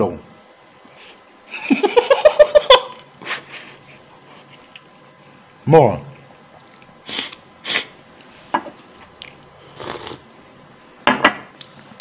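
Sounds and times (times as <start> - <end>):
man slurping noodles: 9.6 - 10.3.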